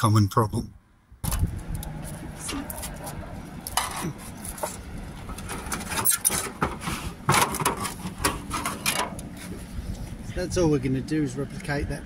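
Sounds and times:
sheet metal scraping on roof tiles: 0:03.8 - 0:09.5.

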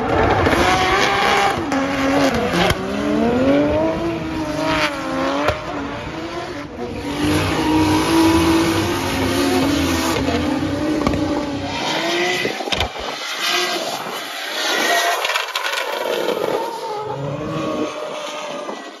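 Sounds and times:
car engine revving hard: 0:00.0 - 0:12.8.

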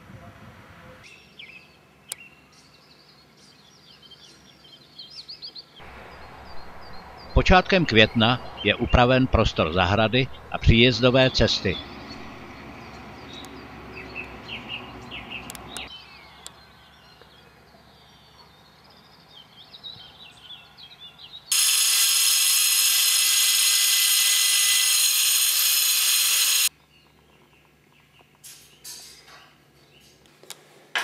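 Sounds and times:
birds chirping: 0:01.1 - 0:24.9
angle grinder whine: 0:05.8 - 0:13.0, 0:21.5 - 0:26.7.

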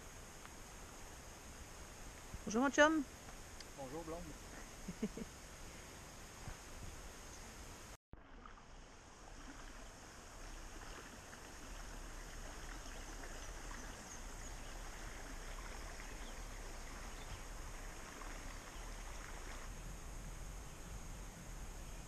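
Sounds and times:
river water rushing: 0:08.3 - 0:19.8.

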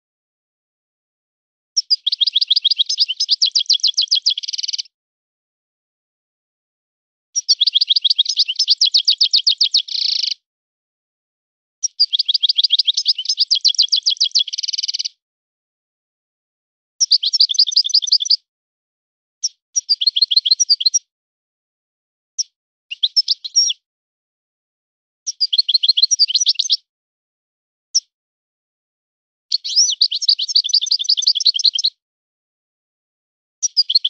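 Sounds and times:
goldfinch twittering song: 0:01.8 - 0:04.9, 0:07.4 - 0:10.4, 0:11.8 - 0:15.2, 0:17.0 - 0:18.4, 0:19.4 - 0:21.0, 0:22.4 - 0:23.8, 0:25.3 - 0:26.8, 0:29.5 - 0:32.0, 0:33.6 - 0:34.0.

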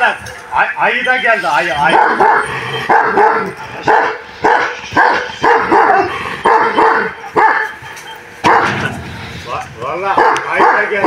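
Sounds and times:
dog barking: 0:01.8 - 0:07.8, 0:08.4 - 0:08.8, 0:10.1 - 0:11.0.

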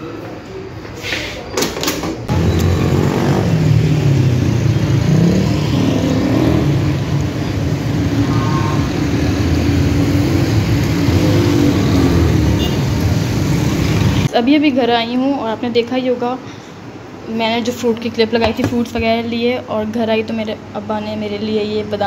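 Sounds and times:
passing car and motorbike engines: 0:02.3 - 0:14.3.

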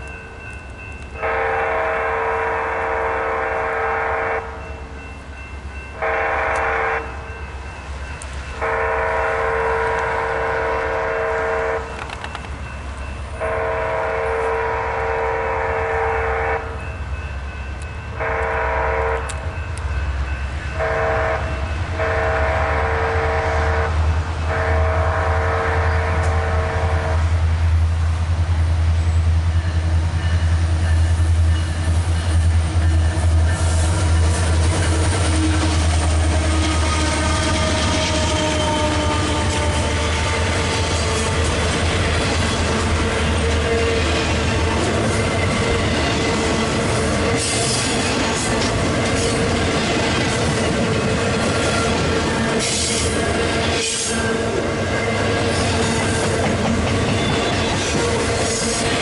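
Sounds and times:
diesel locomotive rumble: 0:00.0 - 0:59.0
locomotive air horn blasts: 0:01.2 - 0:04.6, 0:06.0 - 0:07.2, 0:08.6 - 0:12.0, 0:13.4 - 0:16.8, 0:18.2 - 0:19.6, 0:20.8 - 0:27.4, 0:32.9 - 0:41.5.

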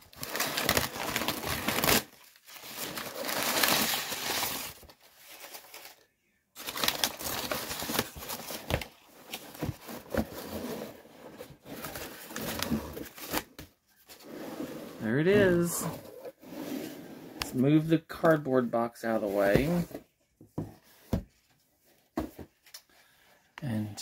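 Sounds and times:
packing paper crumpling: 0:06.6 - 0:08.6.

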